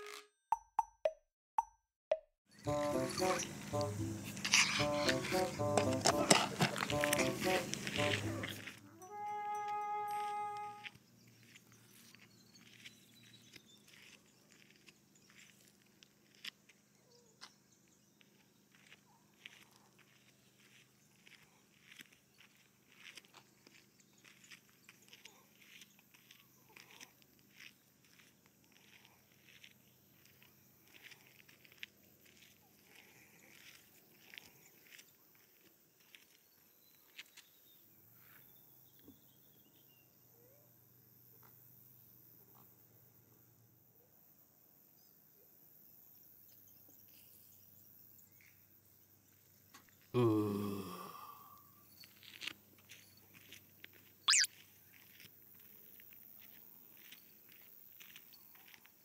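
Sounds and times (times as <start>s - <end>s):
faint high chirp: 54.2s - 54.6s.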